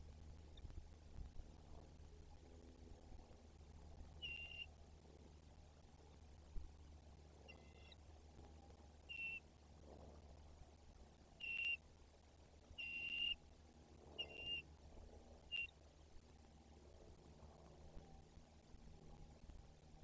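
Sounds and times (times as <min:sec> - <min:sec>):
eagle piping whistles: 0:04.2 - 0:04.7, 0:09.1 - 0:09.4, 0:11.4 - 0:11.8, 0:12.8 - 0:13.4, 0:14.2 - 0:14.6, 0:15.5 - 0:15.7.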